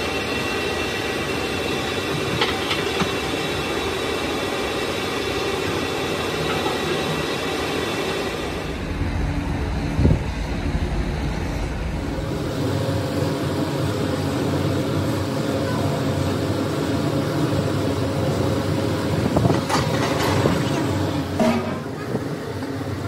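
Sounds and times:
mechanical drone: 0:00.0 - 0:23.0.

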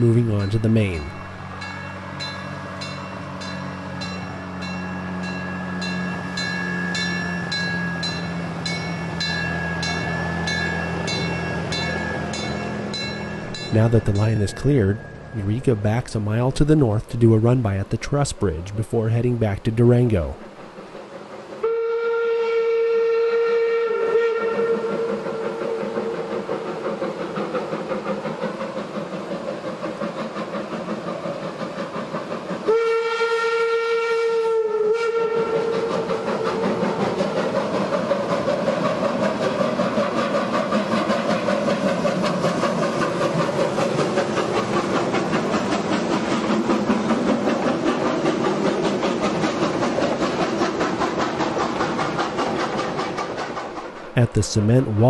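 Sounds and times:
train running over rails: 0:00.0 - 0:55.0
steam whistle blasts: 0:21.6 - 0:26.2, 0:32.6 - 0:36.8.

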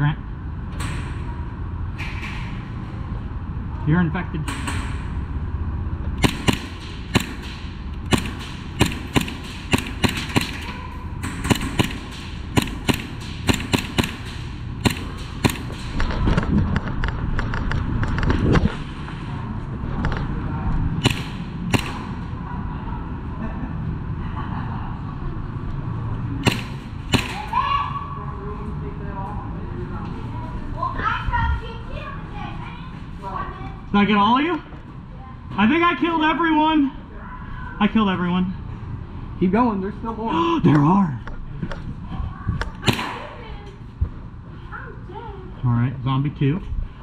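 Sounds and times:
steady low rumble: 0:00.0 - 0:34.0, 0:37.0 - 0:47.0
air pistol shots cracking: 0:06.2 - 0:16.0, 0:21.0 - 0:22.4, 0:26.4 - 0:27.6, 0:42.8 - 0:43.3.

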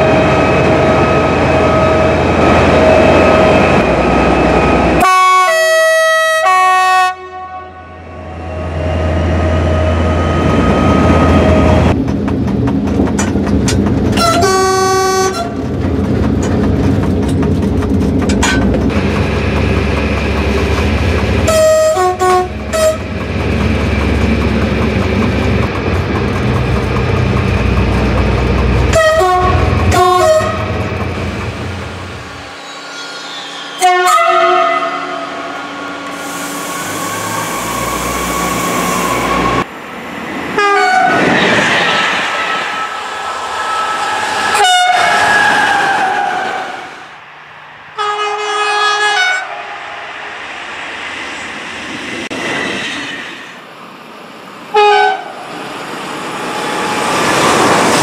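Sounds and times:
rail running noise: 0:00.0 - 0:58.0
two-tone train horn blasts: 0:05.0 - 0:11.9, 0:14.2 - 0:15.6, 0:21.4 - 0:23.1, 0:28.9 - 0:30.8, 0:33.8 - 0:36.2, 0:40.6 - 0:41.2, 0:44.5 - 0:45.2, 0:48.0 - 0:49.6, 0:54.7 - 0:55.4
diesel engine: 0:08.1 - 0:32.8.

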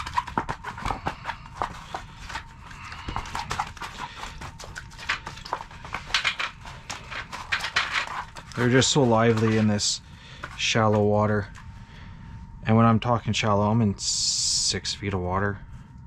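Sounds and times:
fish flopping on wet ice: 0:00.0 - 0:11.1.

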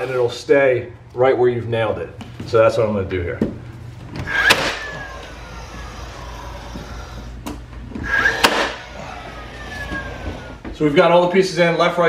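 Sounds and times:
nail gun firing into wood: 0:04.3 - 0:04.8, 0:08.2 - 0:08.8
motor whine sliding down: 0:08.0 - 0:10.6.

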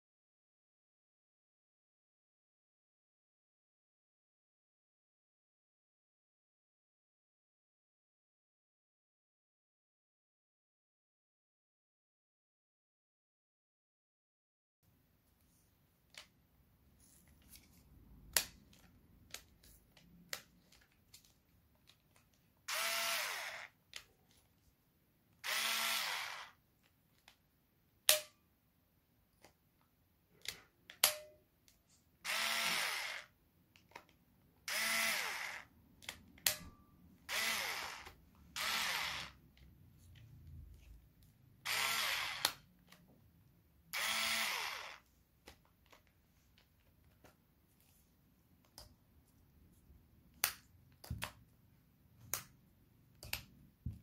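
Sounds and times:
cordless screwdriver motor whining: 0:22.7 - 0:23.8, 0:25.4 - 0:26.6, 0:32.2 - 0:33.3, 0:34.7 - 0:35.7, 0:37.3 - 0:39.4, 0:41.6 - 0:42.6, 0:43.9 - 0:45.0.

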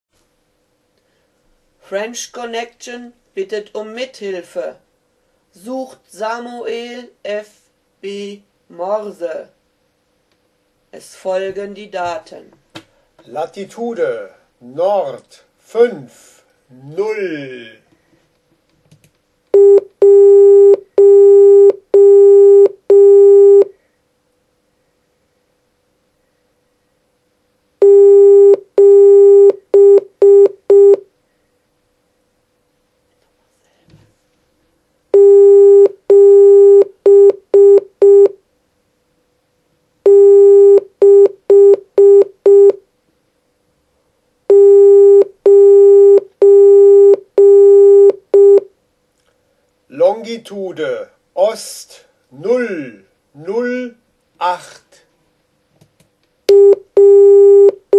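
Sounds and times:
morse code tone: 0:27.8 - 0:31.0, 0:35.2 - 0:38.3, 0:40.1 - 0:42.8, 0:44.5 - 0:48.6
morse code beeping: 0:40.1 - 0:42.8, 0:44.5 - 0:48.6, 0:56.5 - 0:57.8.

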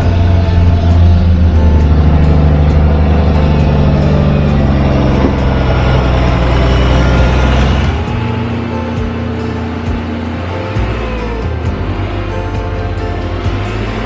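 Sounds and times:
tractor diesel engine running: 0:00.0 - 0:14.0.

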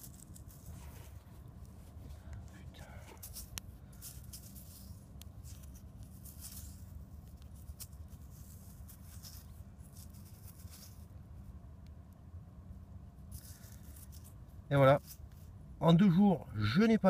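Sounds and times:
scratchy rustles: 0:00.0 - 0:11.2, 0:13.3 - 0:15.6
low steady rumble: 0:00.0 - 0:17.0.

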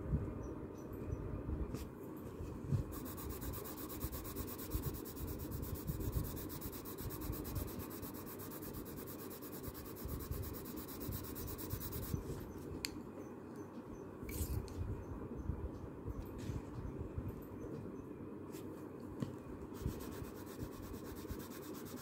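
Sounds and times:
pencil scratching on paper: 0:02.9 - 0:12.4, 0:19.8 - 0:22.0.

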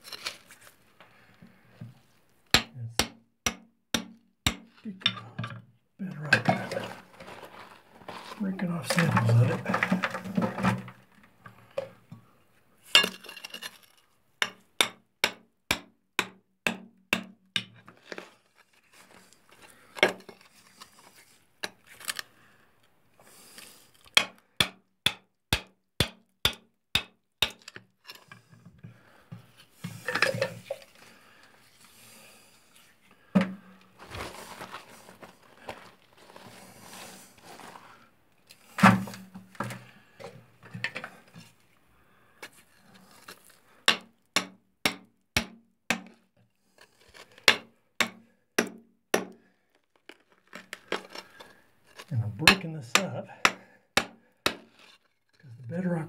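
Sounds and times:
rock scraping and crumbling: 0:06.1 - 0:11.1.

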